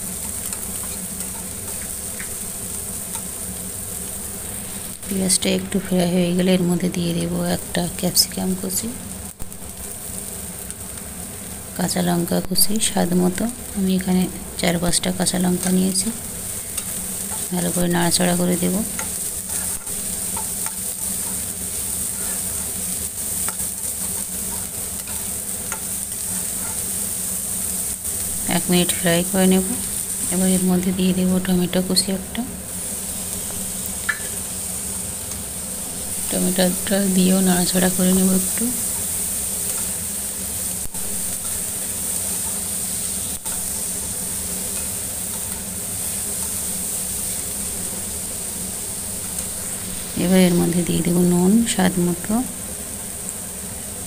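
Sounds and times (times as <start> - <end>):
vegetables sizzling in oil: 0.0 - 54.0
spatula scraping a metal pan: 19.0 - 22.8, 23.4 - 26.9.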